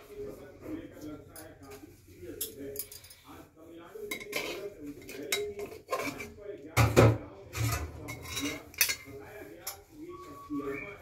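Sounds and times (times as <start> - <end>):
spatula scraping steel plate: 4.1 - 6.3.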